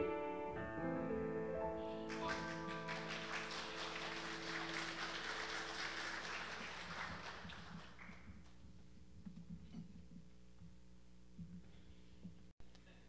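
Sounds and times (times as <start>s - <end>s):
grand piano chord ringing: 0.0s - 6.0s
applause: 2.1s - 8.6s.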